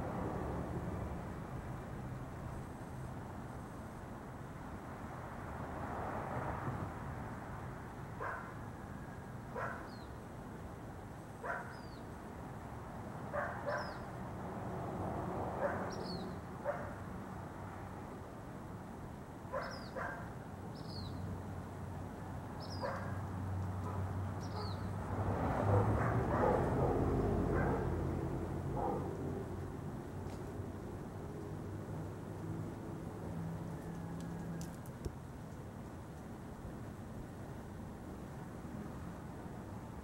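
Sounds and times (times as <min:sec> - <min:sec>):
dog barking: 0:08.2 - 0:08.6, 0:09.6 - 0:09.9, 0:11.4 - 0:11.8, 0:13.3 - 0:14.0, 0:15.6 - 0:16.0, 0:16.6 - 0:17.0, 0:19.5 - 0:20.3, 0:22.8 - 0:23.2, 0:25.6 - 0:27.9, 0:28.8 - 0:29.1.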